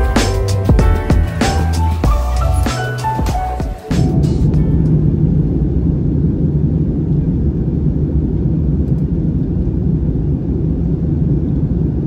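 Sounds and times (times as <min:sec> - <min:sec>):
airliner cabin engine roar: 0:03.8 - 0:12.0.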